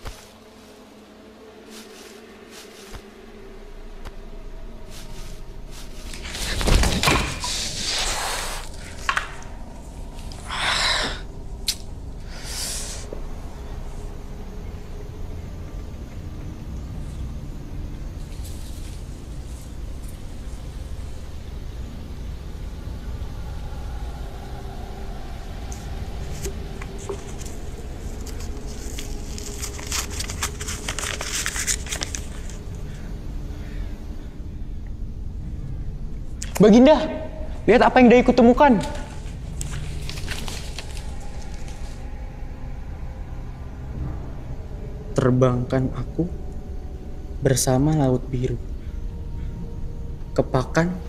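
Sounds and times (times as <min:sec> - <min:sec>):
rustling: 0:00.0 - 0:04.1, 0:04.8 - 0:10.4, 0:25.7 - 0:33.0, 0:38.8 - 0:42.0
low steady hum: 0:00.0 - 0:51.0.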